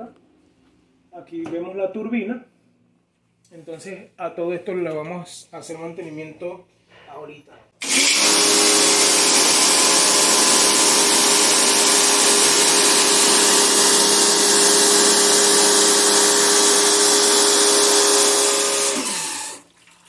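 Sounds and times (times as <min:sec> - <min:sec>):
pressure washer motor humming: 0:07.8 - 0:19.6.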